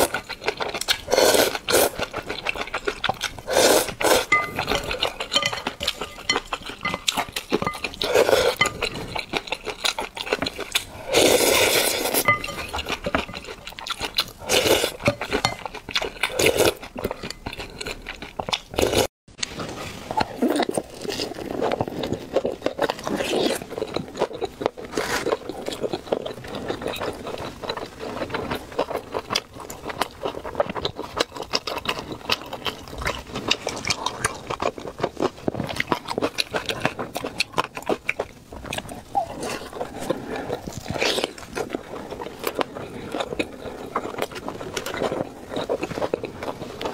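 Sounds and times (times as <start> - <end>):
slurping noodle soup: 0.0 - 18.0
wet chewing: 0.0 - 46.9
utensils clinking on ceramic bowl: 4.2 - 10.6, 11.8 - 14.2, 14.9 - 16.4.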